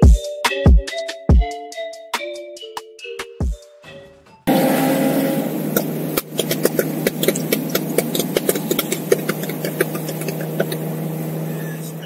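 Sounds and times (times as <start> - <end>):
car engine drone: 4.5 - 12.0.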